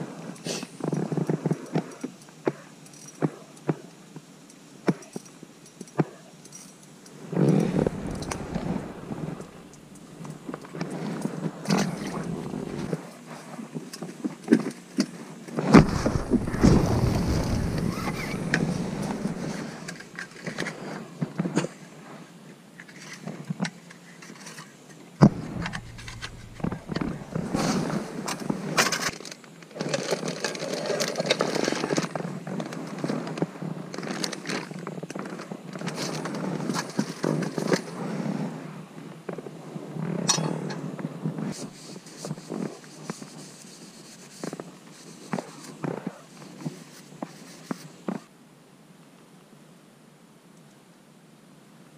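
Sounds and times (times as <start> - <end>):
rustling and handling noise: 5.0 - 21.6, 22.8 - 33.4, 40.1 - 48.3
knocks clicks and scrapes: 25.2 - 28.4.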